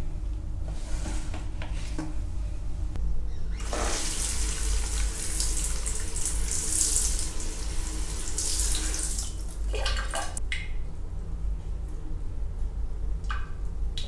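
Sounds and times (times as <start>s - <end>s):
low steady hum: 0.0s - 14.0s
shower sprayer hissing: 3.6s - 9.6s
water splashing on tiled floor: 3.6s - 10.4s.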